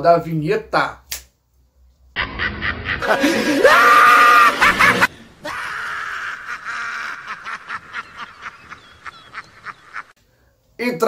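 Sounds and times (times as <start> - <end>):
scream-like cry: 2.2 - 8.5
maniacal cackling laughter: 2.2 - 10.2.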